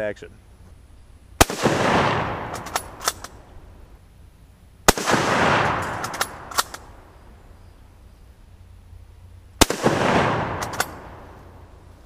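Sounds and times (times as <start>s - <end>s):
rifle shot with echo: 1.4s - 3.4s, 4.9s - 7.1s, 9.6s - 11.7s
rifle bolt clicks: 2.5s - 3.4s, 5.8s - 6.9s, 10.6s - 11.0s.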